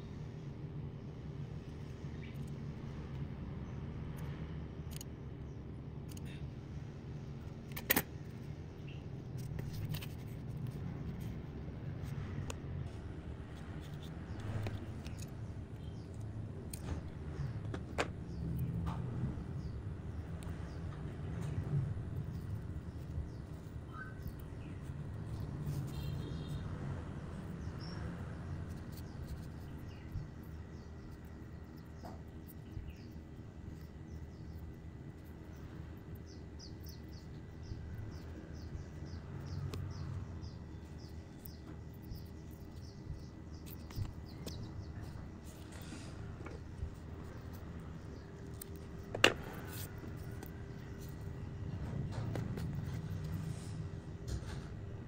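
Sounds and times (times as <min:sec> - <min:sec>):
low background rumble: 0:00.0 - 0:55.0
steady low hum: 0:00.0 - 0:55.0
faint bird-like chirps: 0:23.3 - 0:26.7.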